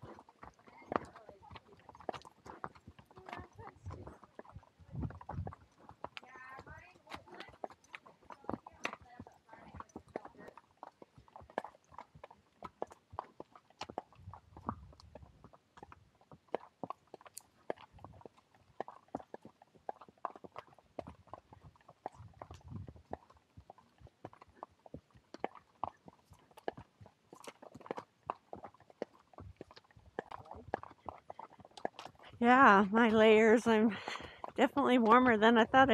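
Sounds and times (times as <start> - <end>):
horse hooves clopping: 0.0 - 35.9.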